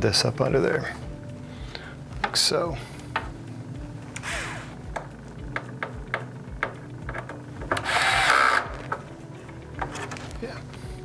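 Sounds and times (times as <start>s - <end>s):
electric screwdriver whirring: 7.7s - 8.9s.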